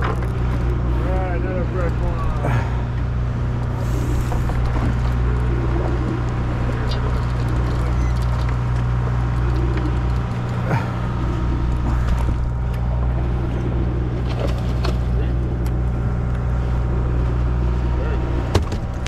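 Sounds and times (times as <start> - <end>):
boat engine humming: 0.0 - 19.0.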